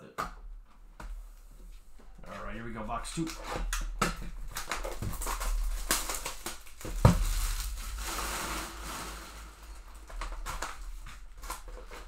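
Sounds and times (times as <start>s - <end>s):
shrink wrap crinkling: 3.1s - 12.0s.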